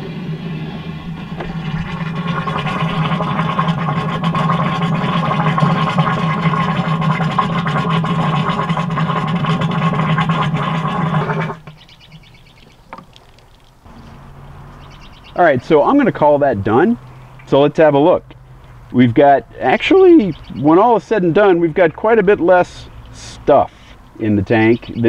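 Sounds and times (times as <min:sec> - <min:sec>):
steady droning tone: 0:00.0 - 0:08.2
water rushing: 0:00.0 - 0:11.7.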